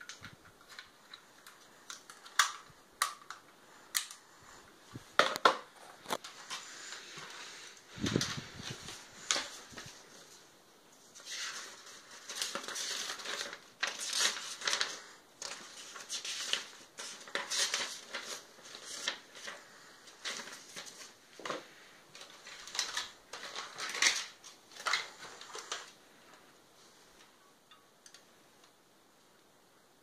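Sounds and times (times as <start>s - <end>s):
paper rustling and crackling: 5.2s - 26.4s.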